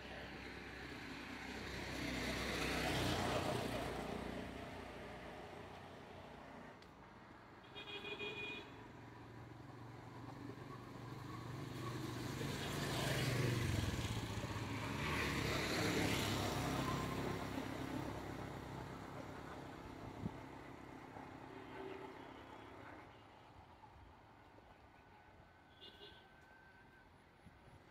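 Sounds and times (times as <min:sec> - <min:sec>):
vehicle passing by: 0:00.3 - 0:05.7, 0:09.8 - 0:22.2.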